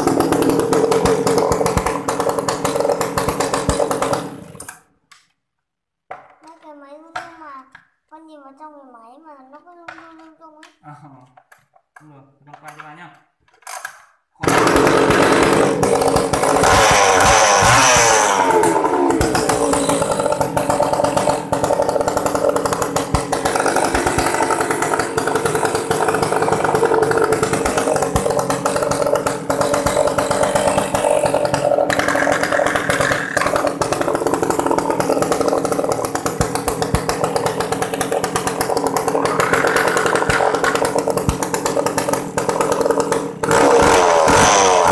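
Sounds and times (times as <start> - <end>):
chainsaw engine revving and idling: 0.0 - 4.8, 14.4 - 44.9.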